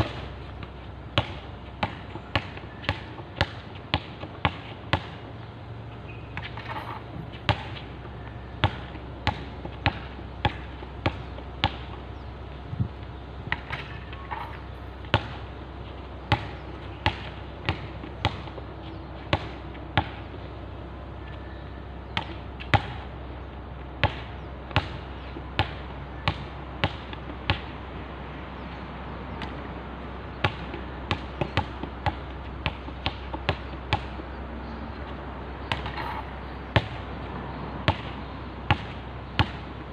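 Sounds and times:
basketball bouncing on hard court: 0.0 - 5.3, 6.1 - 12.2, 13.5 - 15.5, 16.3 - 18.6, 19.3 - 20.2, 22.1 - 23.0, 24.0 - 27.7, 30.3 - 34.2, 35.6 - 37.1, 37.8 - 39.9.

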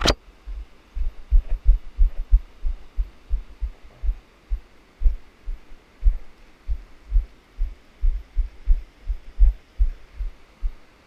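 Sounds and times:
sharp click: 0.0 - 0.2.

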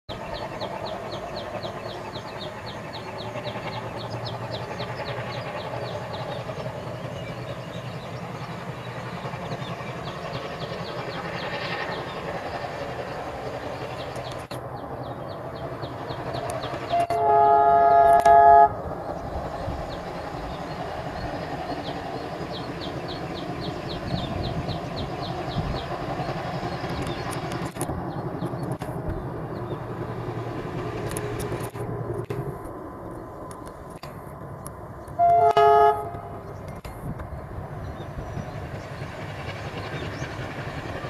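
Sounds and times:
diesel locomotive engine rumble: 0.1 - 41.0
locomotive horn: 16.9 - 18.8, 35.2 - 36.4.

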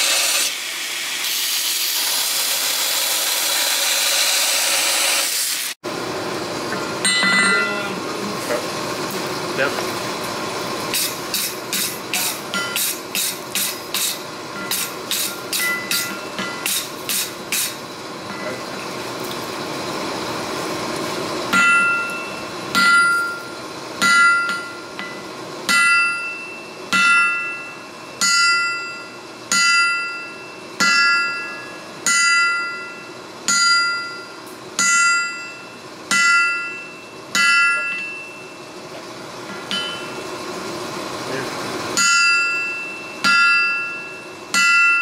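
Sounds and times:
hammer ringing on anvil: 7.0 - 8.0, 11.4 - 17.3, 21.5 - 38.7, 39.5 - 40.4, 42.0 - 45.0.

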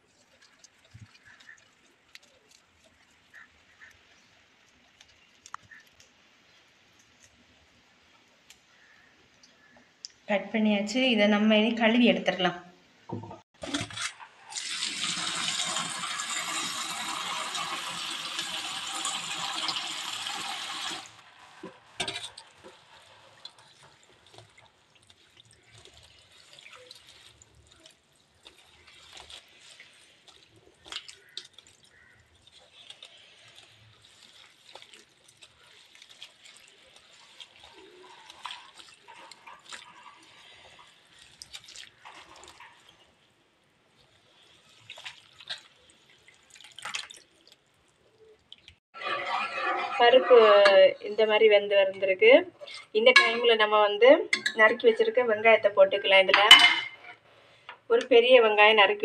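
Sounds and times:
hands swishing leaves in water: 0.0 - 3.6, 21.7 - 43.3, 43.9 - 48.7
small water splashes: 0.0 - 6.1, 21.6 - 48.8
water pouring into steel vessel: 13.6 - 43.2, 44.0 - 50.6.

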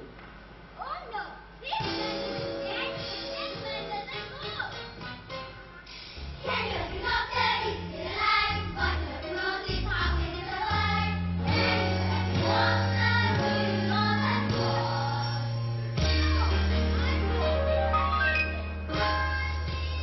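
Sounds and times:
instrumental accompaniment: 1.8 - 20.0
children singing: 6.4 - 15.5.

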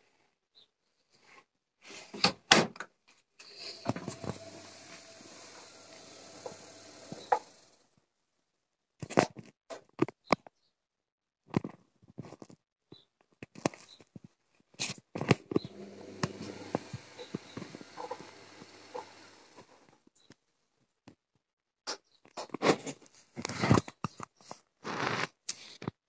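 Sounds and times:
washing machine drum motor humming: 3.6 - 7.8, 15.6 - 19.9.

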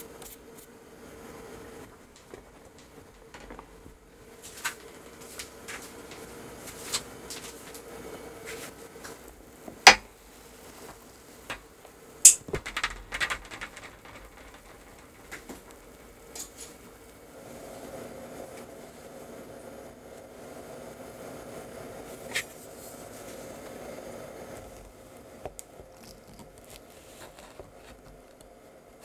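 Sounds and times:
baking sheet clicks and knocks: 9.7 - 10.2, 12.3 - 16.8
sharp clack: 12.3 - 16.6
metal clattering: 12.3 - 16.9.

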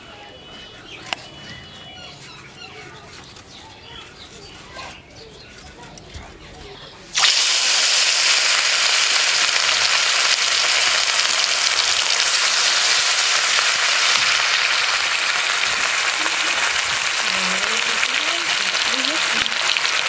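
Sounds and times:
fish sizzling in hot oil: 7.2 - 20.0.

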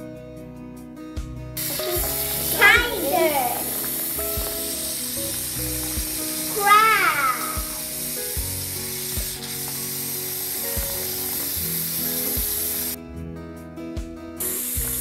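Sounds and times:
background music with soft beat: 0.0 - 15.0
tap water running into basin: 1.6 - 13.0, 14.5 - 15.0.

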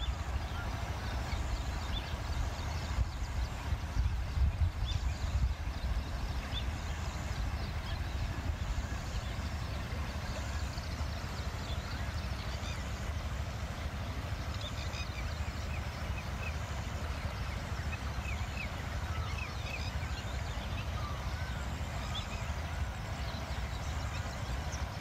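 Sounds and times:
small birds chirping faintly: 0.0 - 25.0
steady low rumble: 0.0 - 25.0.

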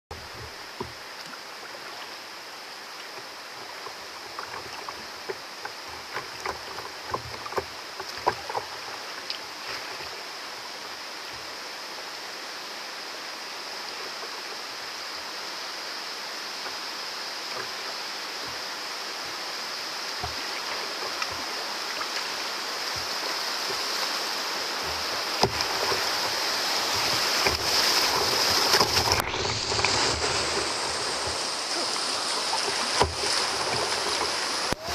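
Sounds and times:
river rapids rushing: 0.1 - 34.9
small water splashes and drips: 2.9 - 10.3, 17.4 - 34.9.

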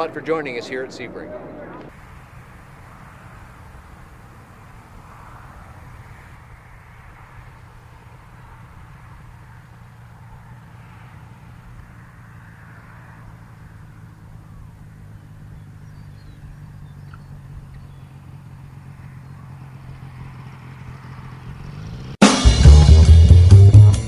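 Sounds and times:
light aircraft engine droning: 0.0 - 22.2
loud guitar and drums music: 22.2 - 24.0.

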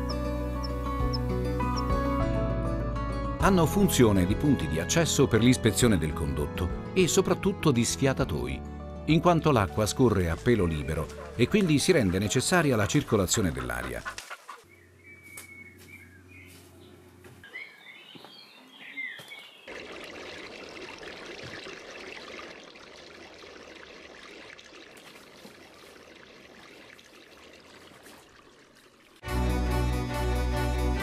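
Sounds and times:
small birds chirping: 0.0 - 2.1, 10.5 - 19.8
harpsichord music: 0.0 - 13.9
rushing water in a channel: 19.7 - 29.2.

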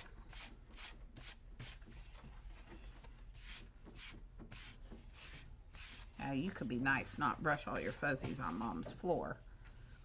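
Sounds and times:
hand brushing paper: 3.3 - 6.3.

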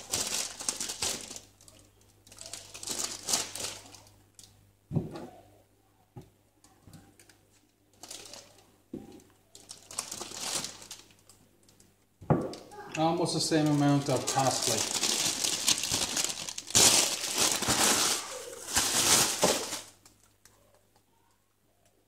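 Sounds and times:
herbs rustling and crinkling: 0.0 - 4.5, 6.9 - 11.9, 13.0 - 20.4.

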